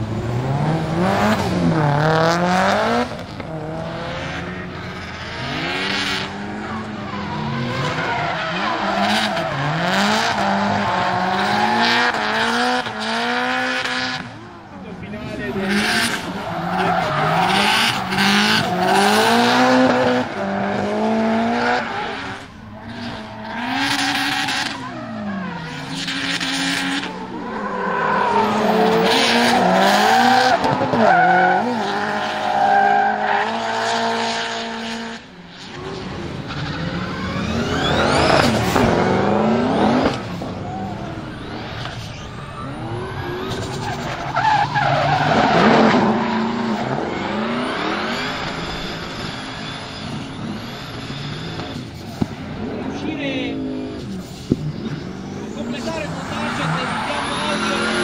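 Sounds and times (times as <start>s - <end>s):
car engine revving: 0.0s - 58.0s
tyres squealing: 15.5s - 19.8s, 52.8s - 58.0s.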